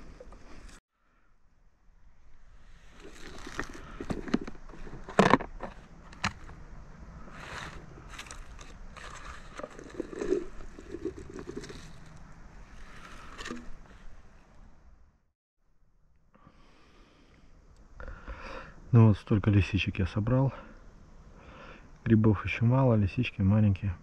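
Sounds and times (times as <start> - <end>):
mushrooms shaken onto dry leaves: 3.0 - 5.1, 7.3 - 12.2.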